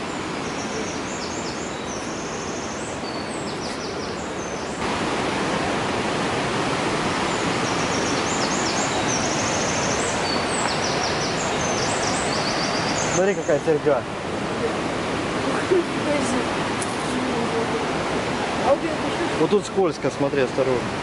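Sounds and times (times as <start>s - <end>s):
small birds twittering: 0.0s - 4.8s, 7.1s - 14.1s
river rushing: 0.0s - 21.0s.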